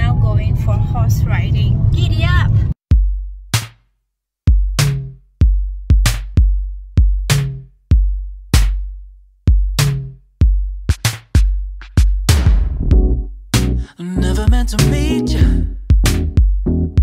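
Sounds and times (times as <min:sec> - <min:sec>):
electronic drum beat with bass: 0:02.9 - 0:03.8, 0:04.5 - 0:13.8, 0:14.4 - 0:17.0.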